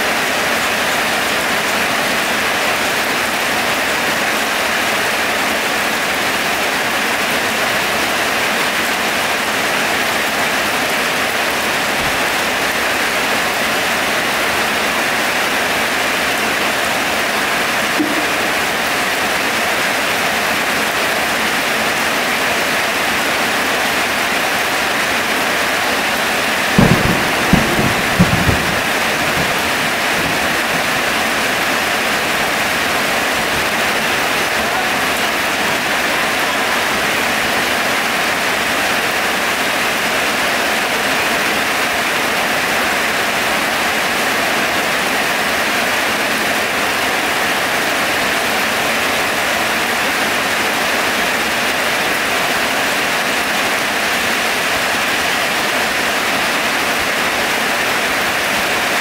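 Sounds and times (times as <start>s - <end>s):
heavy rain falling: 0.0s - 59.0s
low thumps: 26.8s - 31.7s.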